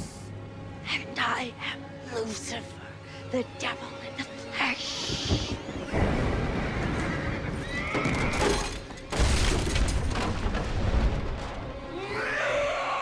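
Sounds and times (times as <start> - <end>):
horse whinnying: 6.8 - 8.8
loud deep rumbling crash: 9.1 - 11.8.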